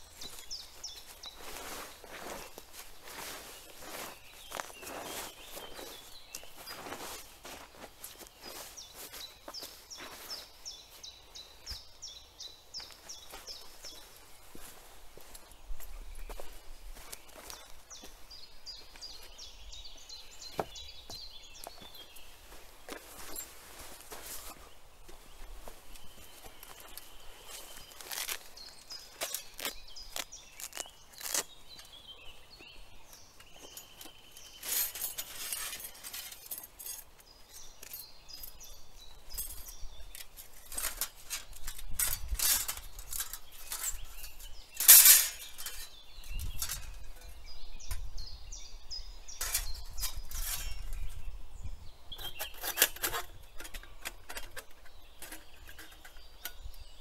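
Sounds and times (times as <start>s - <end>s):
birds calling: 0.0s - 57.0s.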